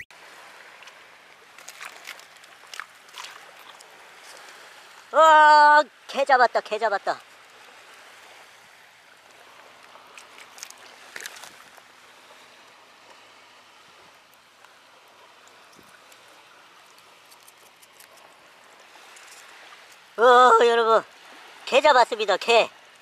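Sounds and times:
water trickling over mud: 0.4s - 5.2s, 7.2s - 22.2s
small clicks and rustles: 1.6s - 4.5s, 9.8s - 11.8s, 15.4s - 18.4s, 19.0s - 20.0s.

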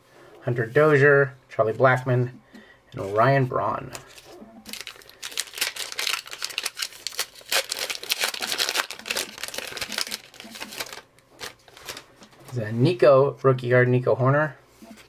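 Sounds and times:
wrapper tearing and crinkling: 4.1s - 12.1s.

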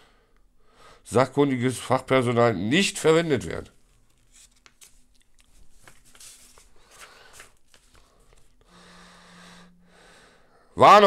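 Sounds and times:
paper pages rustling: 3.7s - 8.6s.

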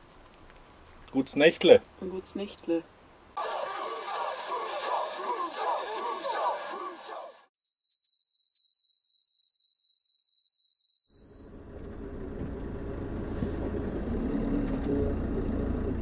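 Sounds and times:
cricket chirping: 7.6s - 11.6s.

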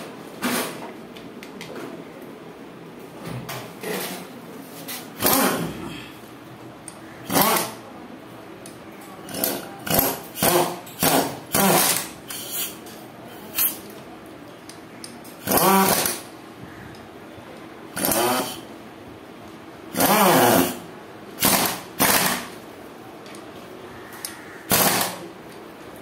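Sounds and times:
ratchet wrench clicking: 6.9s - 7.8s, 9.3s - 12.8s, 15.4s - 16.2s, 18.0s - 18.6s.

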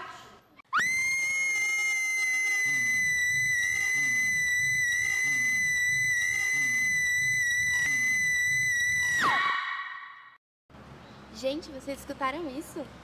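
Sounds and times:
high-pitched steady scream: 0.7s - 10.4s.

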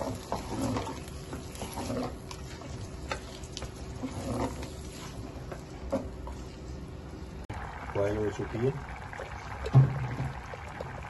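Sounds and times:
wooden spoon stirring and scraping: 0.0s - 6.7s
masala frying: 0.0s - 11.0s.

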